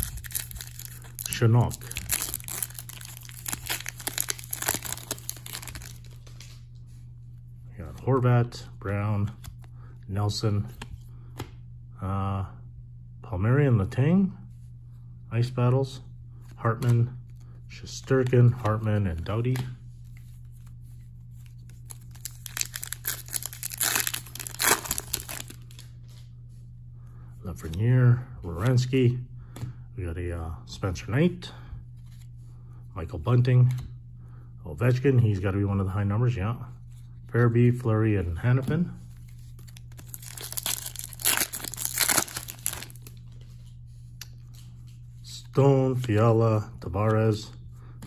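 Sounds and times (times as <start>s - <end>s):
wrapper being torn and crumpled: 0.0s - 6.3s, 21.8s - 25.9s, 39.6s - 43.2s.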